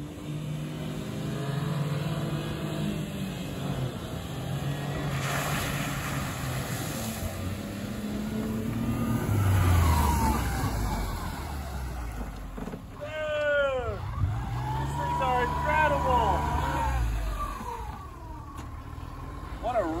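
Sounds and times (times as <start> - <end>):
small truck engines revving: 0.0 - 20.0
water spraying hiss: 5.1 - 7.9.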